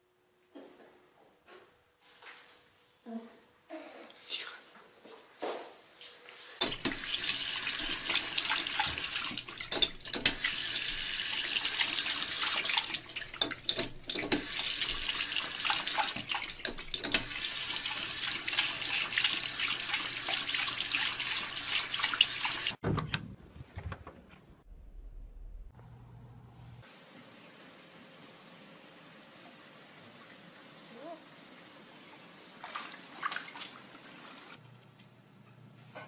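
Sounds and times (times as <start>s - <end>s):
water running from tap: 6.6s - 22.8s, 27.0s - 34.6s
small water splashes: 32.6s - 34.4s.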